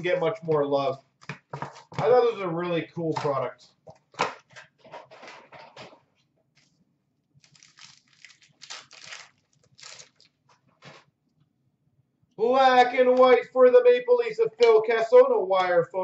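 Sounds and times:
card pack wrappers crinkling and tearing: 0:07.4 - 0:11.0.

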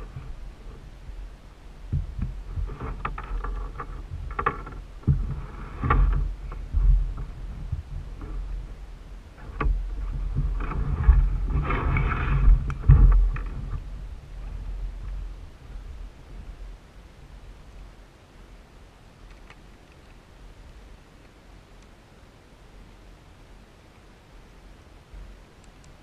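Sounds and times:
rubbing and rustling: 0:00.0 - 0:16.7
thumps and knocks on plastic kayak hull: 0:01.8 - 0:08.8, 0:09.4 - 0:15.3
sharp clicks: 0:19.2 - 0:20.2, 0:25.6 - 0:26.0.

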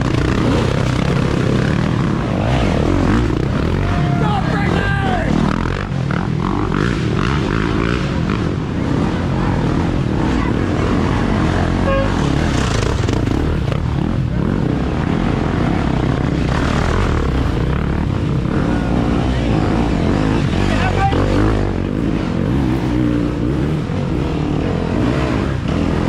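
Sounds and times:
dirt bike engines revving: 0:00.0 - 0:26.0.

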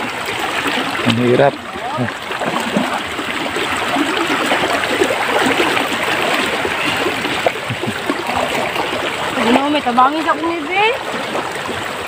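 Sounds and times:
floodwater flowing: 0:00.0 - 0:12.0
water splashing around wading legs: 0:00.0 - 0:12.0.

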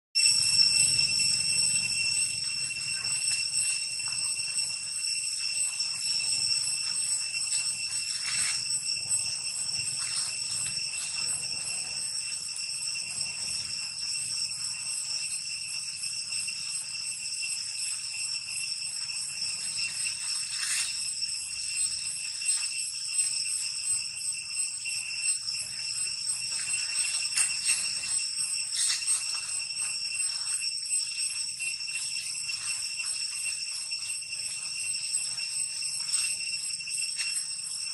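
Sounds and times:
high-pitched insect drone: 0:00.2 - 0:37.9
rustling of dry leaves: 0:06.8 - 0:12.2, 0:19.4 - 0:21.0, 0:25.6 - 0:31.4.

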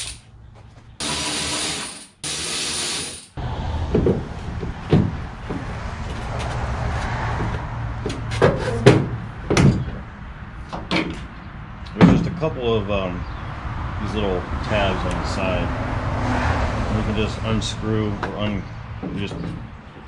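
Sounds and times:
cordless drill running: 0:01.0 - 0:03.4
sharp knocks: 0:03.9 - 0:05.7.

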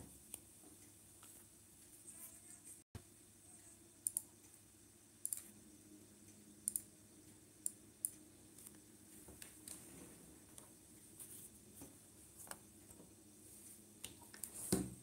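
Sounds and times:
low steady room hum: 0:00.0 - 0:15.0
computer mouse clicks: 0:04.0 - 0:04.6, 0:05.2 - 0:05.6, 0:06.6 - 0:06.9.

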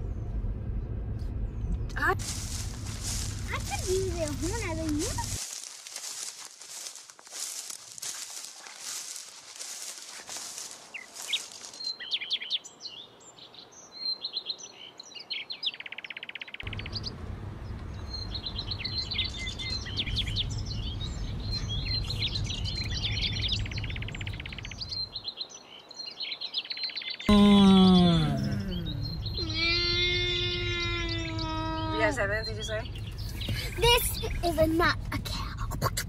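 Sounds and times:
low steady rumble: 0:00.0 - 0:05.4, 0:16.6 - 0:25.1, 0:27.3 - 0:36.0
songbirds chirping and trilling: 0:00.0 - 0:35.6
loud drawn-out falling cry: 0:27.3 - 0:32.0.

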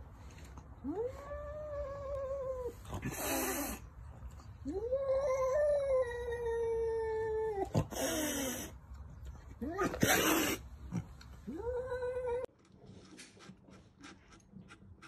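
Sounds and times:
cat hissing: 0:03.0 - 0:03.9, 0:07.8 - 0:08.8, 0:09.9 - 0:10.7.

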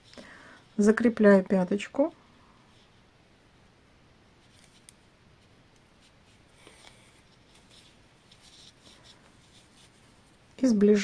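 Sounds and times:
yarn rustling through fabric: 0:05.9 - 0:11.0.

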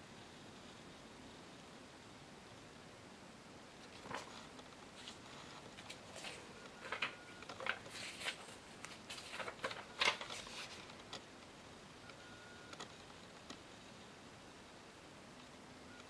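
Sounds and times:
paper cards rustling: 0:03.8 - 0:11.2.

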